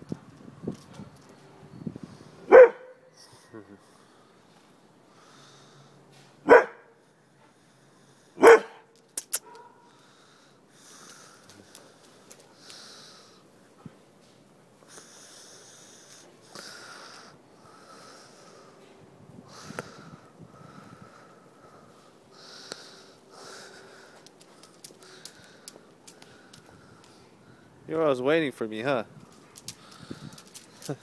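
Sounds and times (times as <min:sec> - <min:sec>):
dog barking: 0:02.5 - 0:03.0, 0:06.4 - 0:06.9, 0:08.4 - 0:08.8, 0:09.4 - 0:09.9.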